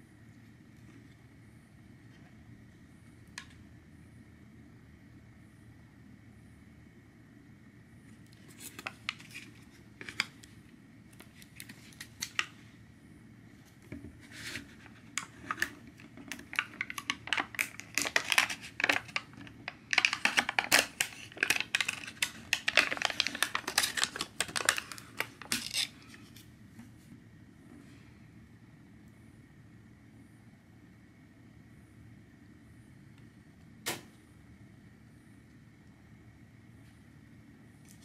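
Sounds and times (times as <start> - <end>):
film lid crinkling as peeled: 8.3 - 10.6, 11.2 - 12.6, 14.2 - 26.5
plastic cup clicks and crackles: 13.9 - 26.0.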